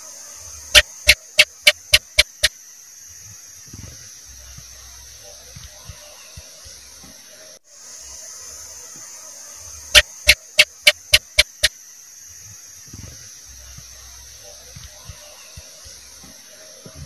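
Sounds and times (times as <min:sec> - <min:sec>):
steady hiss: 0:00.0 - 0:17.0
gecko chirping: 0:00.7 - 0:02.5, 0:09.9 - 0:11.7.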